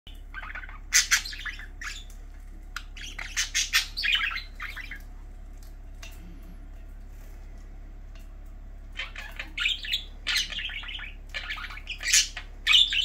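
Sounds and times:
budgerigars chirping and squawking: 0.1 - 5.1, 8.9 - 13.0
steady low hum: 0.1 - 13.0.

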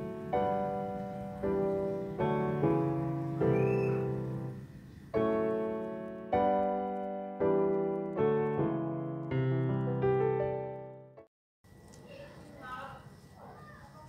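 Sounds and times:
slow piano chords: 0.0 - 11.3.

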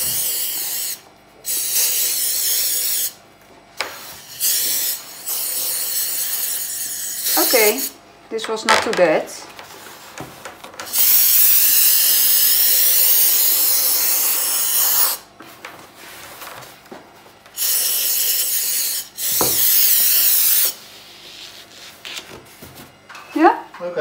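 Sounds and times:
compressed air blow gun hissing: 10.9 - 15.2, 17.6 - 20.8.

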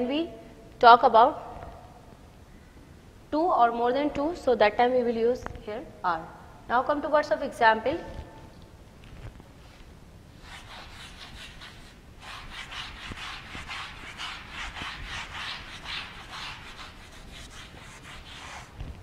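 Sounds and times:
duster rubbing chalkboard: 10.4 - 18.9.

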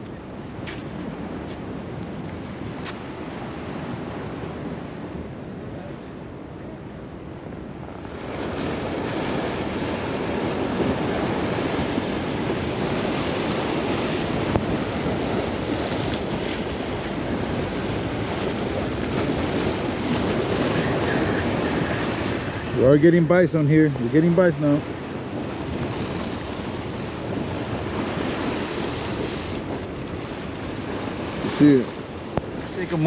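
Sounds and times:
wind buffeting microphone: 0.0 - 33.0
waves breaking on rocks: 8.0 - 33.0.

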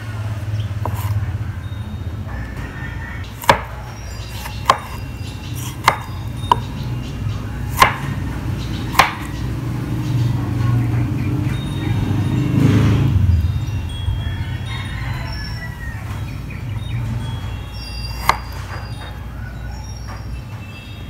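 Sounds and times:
knife chopping on cutting board: 0.8 - 1.2, 3.4 - 5.0, 5.6 - 6.7, 7.7 - 8.2, 8.9 - 9.4, 18.1 - 18.8.

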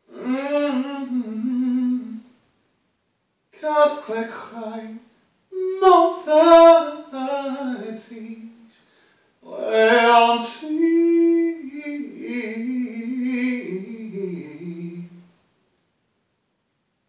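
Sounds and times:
man chanting: 3.6 - 5.0, 5.6 - 8.6, 9.5 - 15.2.

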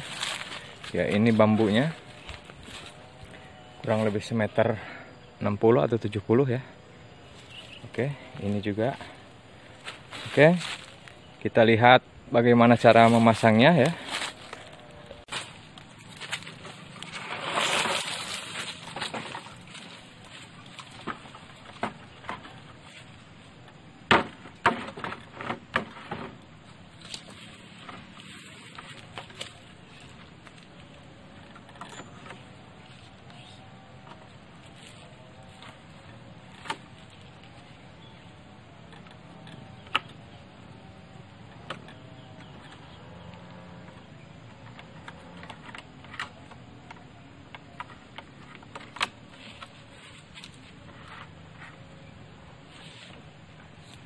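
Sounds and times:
bamboo poles knocking together: 12.8 - 23.1, 24.0 - 37.6
bamboo poles knocking: 24.1 - 26.4.

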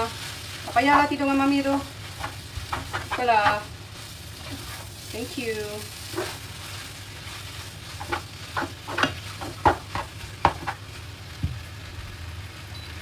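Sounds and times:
noodles sizzling in a frying pan: 0.0 - 13.0
utensil knocking and scraping a pan: 2.1 - 3.7, 4.4 - 5.0, 6.0 - 6.6, 7.8 - 10.9.

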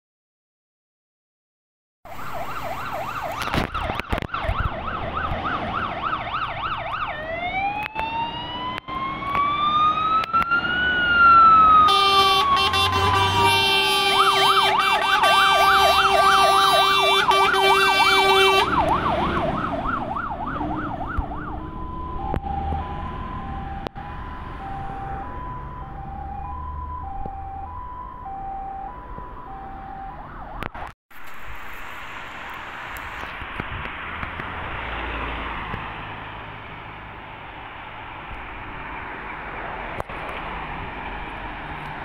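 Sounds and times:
fire engine siren: 2.1 - 31.4
air horns blaring: 11.8 - 19.0.

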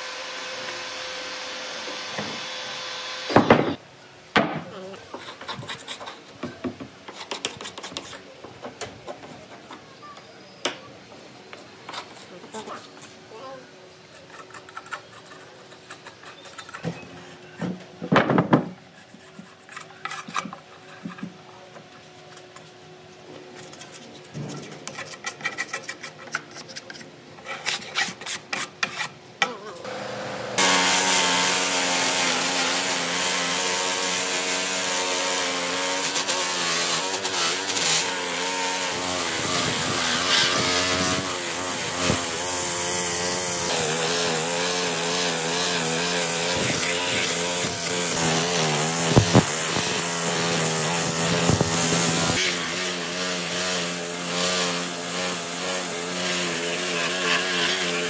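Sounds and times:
hand scraping wood: 5.1 - 6.3, 13.9 - 17.6, 18.6 - 22.8, 30.6 - 58.0
rotary brush wheel on wood: 30.6 - 58.0.

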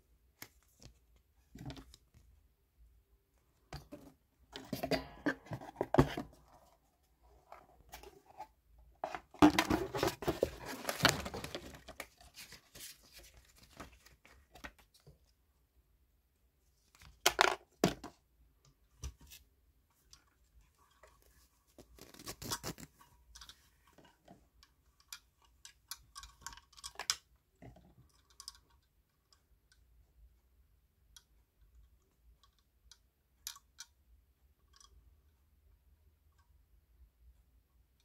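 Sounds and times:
metal pedal clicks and knocks: 4.6 - 6.2.

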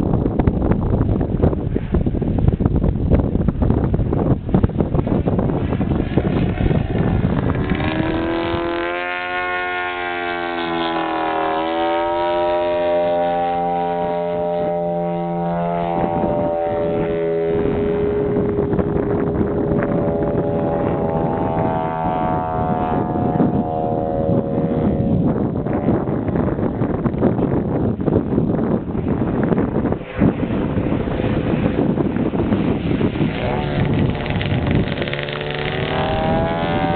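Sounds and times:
wind rumble on microphone: 0.0 - 36.9
model plane engine droning: 5.6 - 26.1, 29.4 - 36.9.

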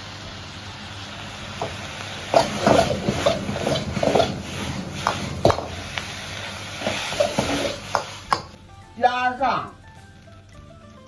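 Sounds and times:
ladle scraping a wok: 2.3 - 8.4.

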